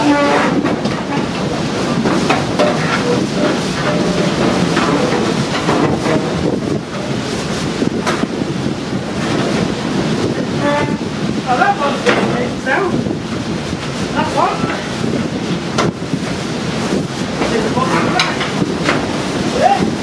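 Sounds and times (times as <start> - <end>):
gale wind buffeting microphone: 0.0 - 20.0
metal loungers knocking: 0.4 - 7.3.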